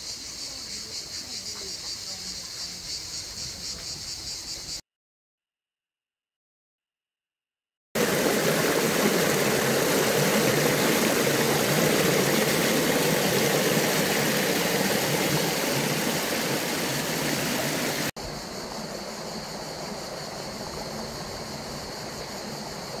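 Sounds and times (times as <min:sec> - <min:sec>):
water rushing and splashing: 0:08.0 - 0:18.1
flowing stream: 0:08.0 - 0:23.0.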